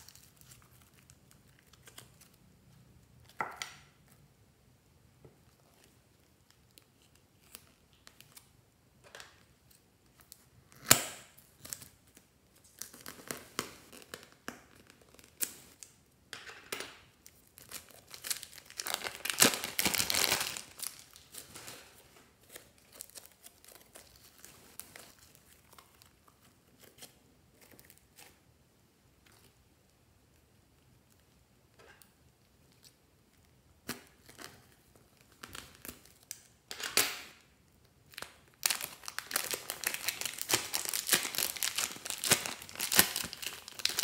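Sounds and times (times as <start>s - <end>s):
plastic bag crinkling: 17.7s - 22.0s, 38.2s - 44.0s.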